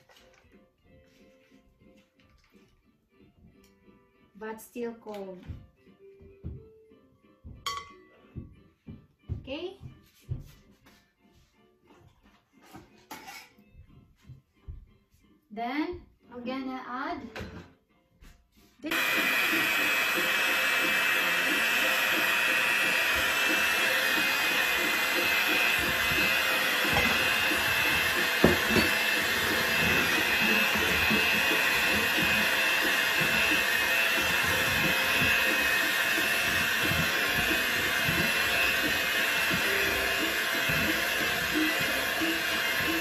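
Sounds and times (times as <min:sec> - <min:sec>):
electric hand mixer running: 0:18.9 - 0:43.0.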